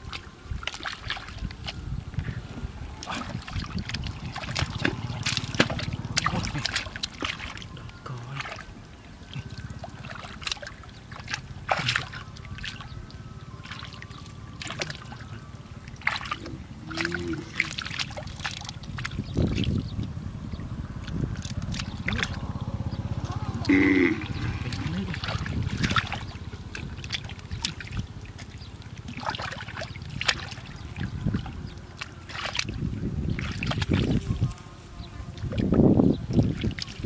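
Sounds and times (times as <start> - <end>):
hands splashing in shallow water: 10.1 - 12.8, 14.6 - 15.2, 24.7 - 30.8, 32.0 - 34.3.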